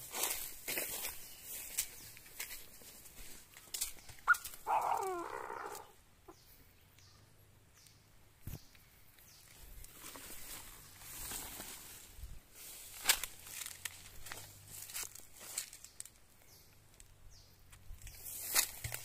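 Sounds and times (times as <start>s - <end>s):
rustling of grass and leaves: 0.0s - 6.8s, 8.4s - 19.0s
francolin harsh call: 4.3s - 6.0s.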